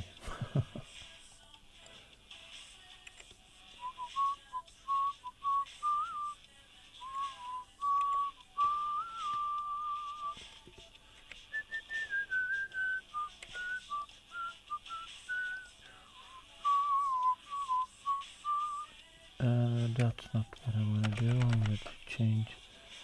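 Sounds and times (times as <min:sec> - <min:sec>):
person whistling a tune: 0:03.8 - 0:06.4, 0:07.0 - 0:10.4, 0:11.5 - 0:19.0.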